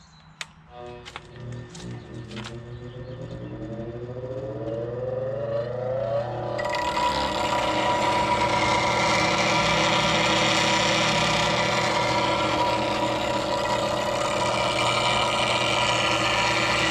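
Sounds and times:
bench grinder motor whine: 0.7s - 16.9s
grinding hiss: 6.3s - 16.9s.

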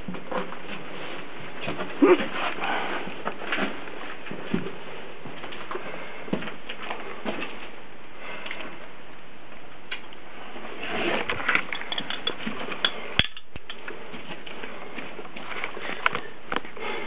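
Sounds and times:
metal clinks and clatters: 11.6s - 13.8s.

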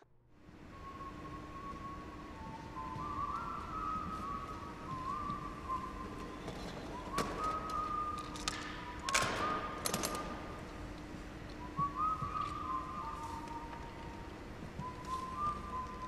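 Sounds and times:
person whistling a slow tune: 0.5s - 16.0s.

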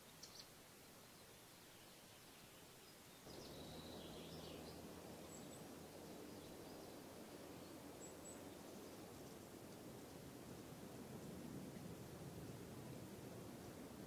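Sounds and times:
faint bird chirps: 0.0s - 9.4s
low background hiss: 0.0s - 14.0s.

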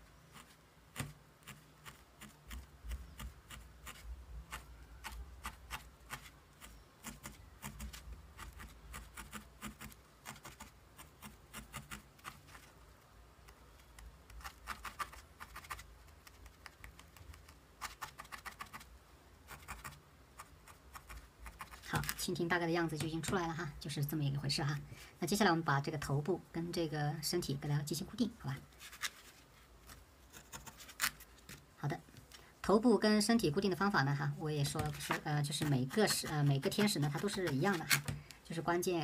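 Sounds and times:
felting needle poking wool: 0.3s - 12.8s, 13.4s - 23.7s, 34.5s - 38.4s.

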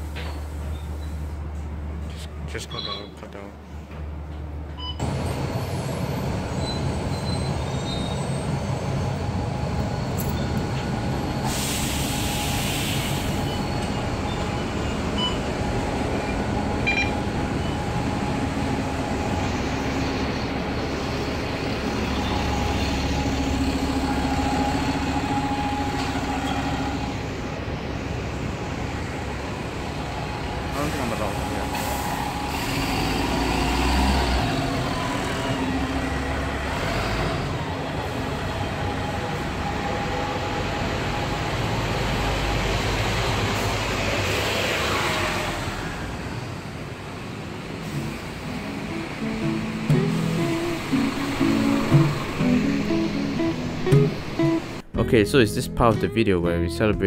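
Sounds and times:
road and cabin noise: 0.0s - 55.2s
bus engine running: 3.6s - 55.2s
hiss: 11.4s - 13.5s.

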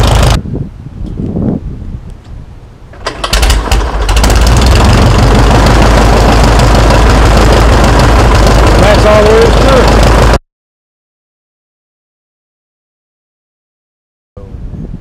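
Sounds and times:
light aircraft piston engine: 0.0s - 0.4s, 3.0s - 10.4s.

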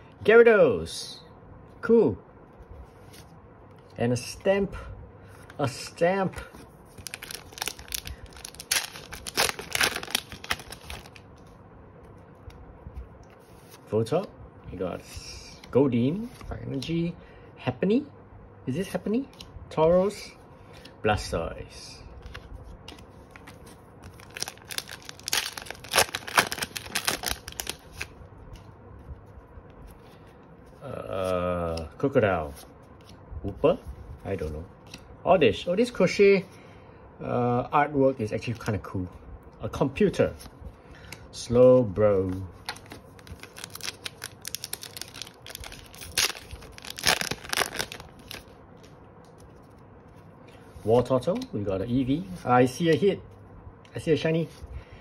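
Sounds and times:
handling of wrapper and cards: 6.9s - 11.6s, 22.2s - 31.9s, 42.2s - 50.3s
foil pack crackling and ripping: 7.0s - 11.2s, 24.0s - 28.1s, 42.7s - 48.6s.

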